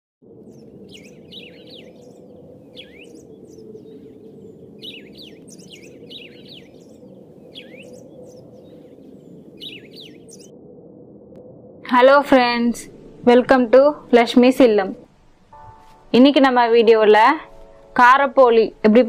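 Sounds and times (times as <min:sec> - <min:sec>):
birds chirping: 0:00.4 - 0:10.6
low background noise: 0:11.8 - 0:19.0.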